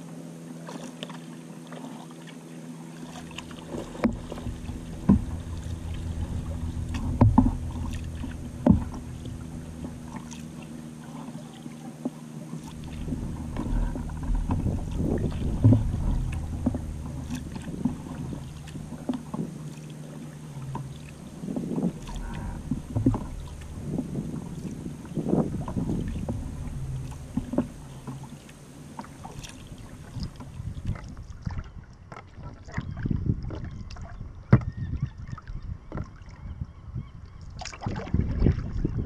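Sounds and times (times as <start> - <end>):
water rushing along hull: 0.0 - 39.0
paddle splashing and dripping: 0.3 - 36.4, 37.3 - 38.9
knocks on wooden kayak: 3.8 - 10.4, 12.9 - 18.4, 21.7 - 28.3.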